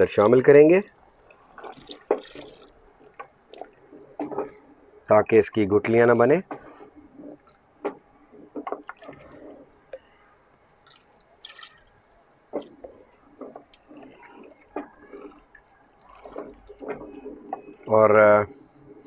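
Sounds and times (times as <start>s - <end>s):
slurry being poured: 1.3s - 2.9s, 10.8s - 12.0s, 12.6s - 17.9s
thick gravy sloshing in pot: 1.4s - 3.9s, 12.6s - 17.9s.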